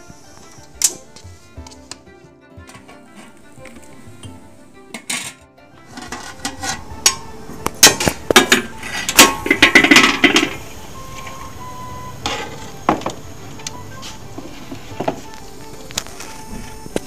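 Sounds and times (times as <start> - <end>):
ladle scraping metal pot: 2.7 - 11.6, 12.2 - 15.3.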